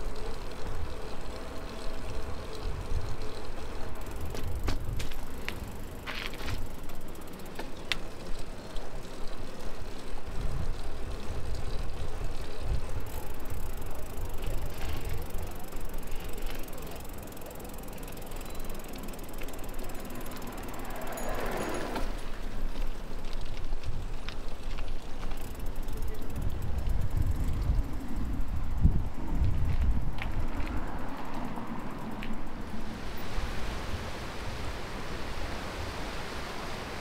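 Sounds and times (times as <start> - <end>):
bike clicks and rattles: 0.0 - 33.0
bicycle riding on pavement: 0.0 - 37.0.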